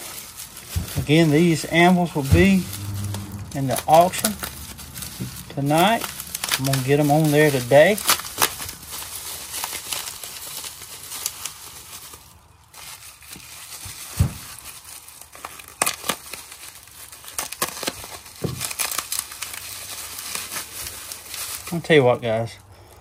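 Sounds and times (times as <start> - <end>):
packing material crinkling: 0.0 - 3.4, 4.0 - 22.5
low thump: 2.2 - 5.6.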